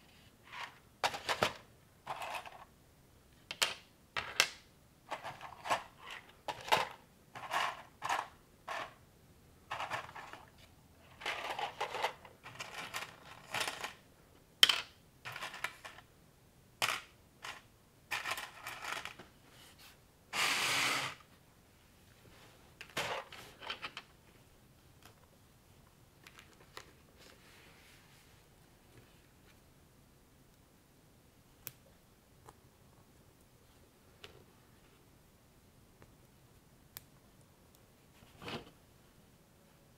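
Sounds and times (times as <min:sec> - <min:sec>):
loose plastic pieces rattling: 0:01.0 - 0:02.6, 0:09.7 - 0:10.5, 0:11.1 - 0:14.0, 0:14.6 - 0:16.0, 0:16.8 - 0:19.2.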